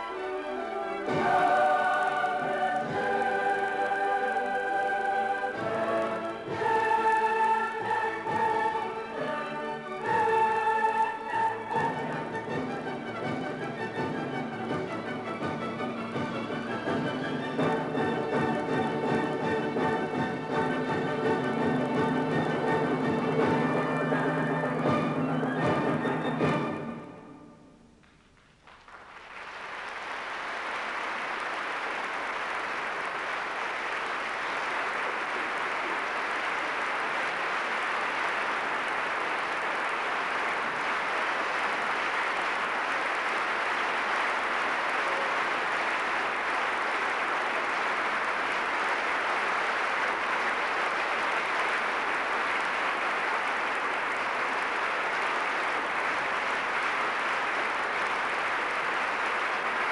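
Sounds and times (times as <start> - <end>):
large audience applauding: 28.0 - 59.9.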